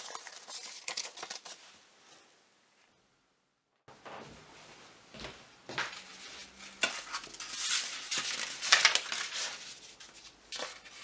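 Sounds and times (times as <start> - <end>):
kraft paper rustling and crinkling: 0.0 - 1.7, 6.0 - 11.0.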